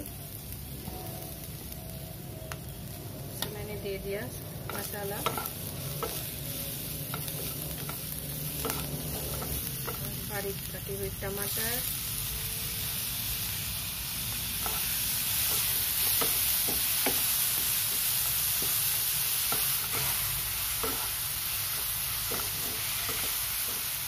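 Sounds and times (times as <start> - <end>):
vegetables sizzling in a pan: 0.0 - 24.0
spatula knocking and scraping pan: 4.7 - 6.2, 8.6 - 10.1.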